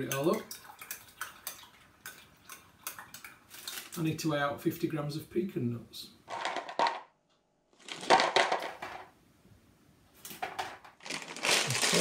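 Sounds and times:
nuts rattling onto scales: 0:07.8 - 0:09.1.

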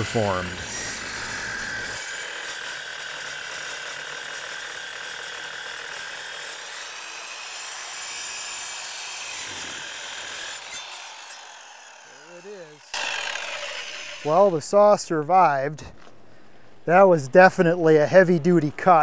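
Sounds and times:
circular saw cutting steel: 0:00.0 - 0:15.8.

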